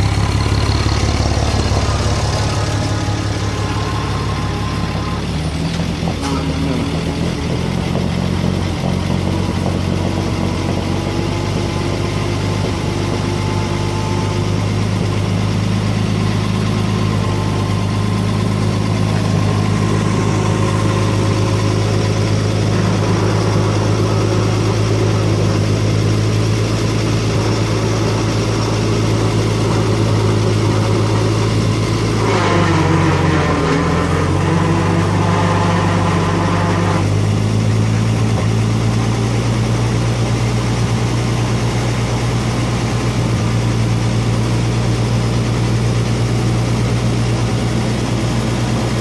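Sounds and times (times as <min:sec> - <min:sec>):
forklift engine idling: 0:00.0 - 0:49.0.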